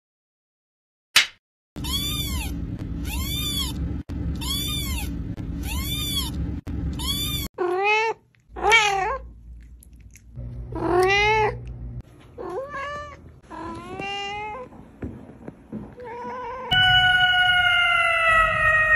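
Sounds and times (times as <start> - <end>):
kitten meowing: 1.8 - 3.8, 4.4 - 6.4, 7.0 - 9.2, 16.4 - 18.9
steady low hum: 1.8 - 7.5, 9.2 - 12.4.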